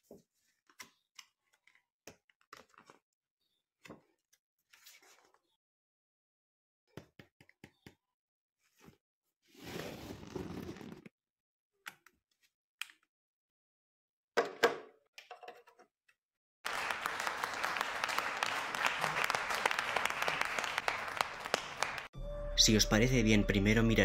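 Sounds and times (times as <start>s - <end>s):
people applauding: 16.7s - 22.1s.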